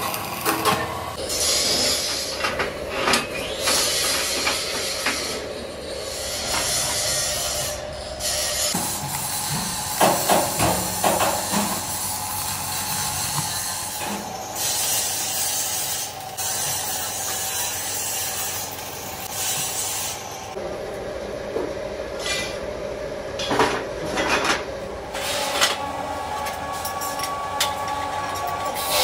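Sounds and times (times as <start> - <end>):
arc welding crackling hiss: 0.0 - 2.5, 3.6 - 20.6.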